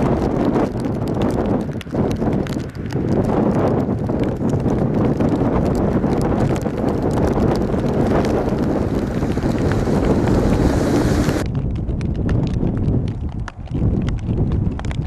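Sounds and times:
wind buffeting microphone: 0.0 - 15.0
jet engines rumbling: 5.6 - 11.4.

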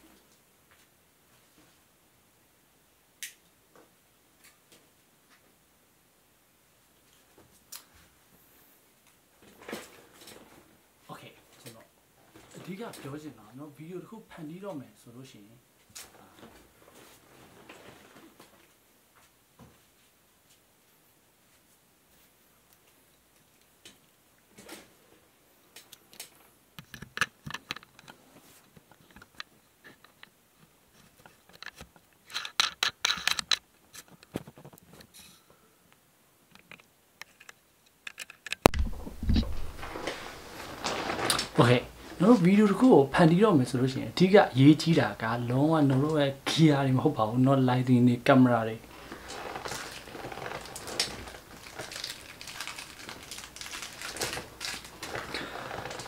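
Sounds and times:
rustling and handling noise: 6.9 - 13.6, 15.7 - 35.6, 36.4 - 47.4, 48.4 - 56.0
small clicks and knocks: 25.7 - 35.4, 36.5 - 40.1.

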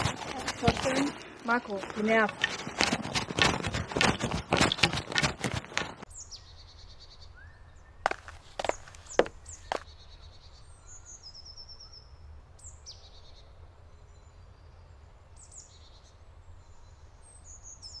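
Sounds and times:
small birds chirping: 6.0 - 14.8.

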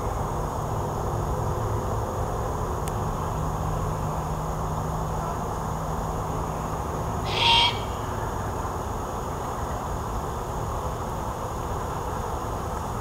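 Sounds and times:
owl raspy hissing screech: 7.2 - 8.0.

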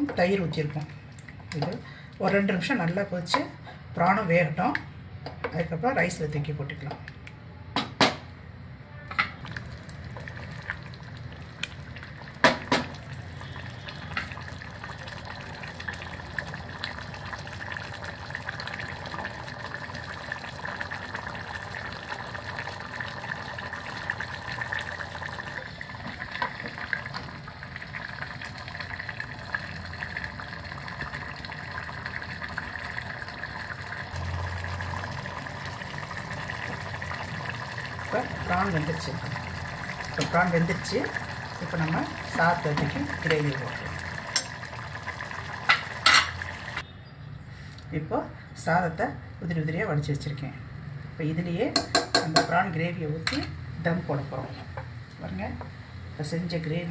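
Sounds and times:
sauce bubbling in a pot: 9.4 - 46.9.

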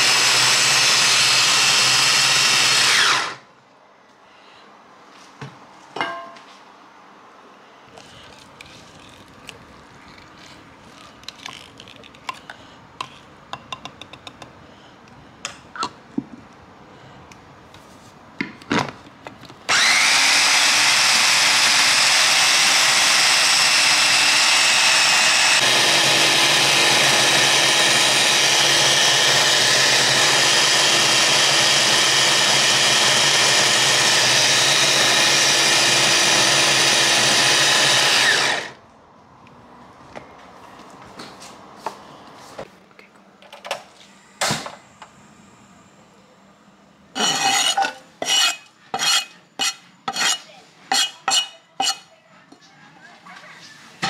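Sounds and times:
food chopper motor grinding: 0.0 - 3.4, 19.7 - 38.8.

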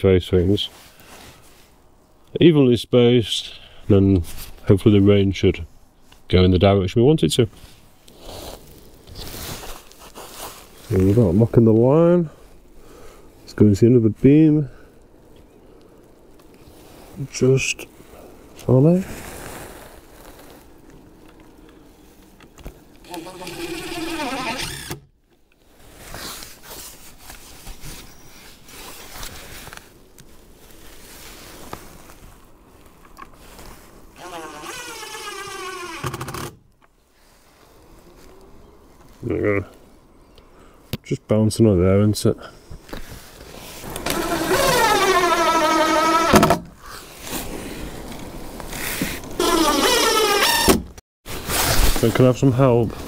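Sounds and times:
scuffing and handling noises: 7.6 - 11.7
cordless drill driving screw: 23.1 - 25.1, 44.0 - 46.4.

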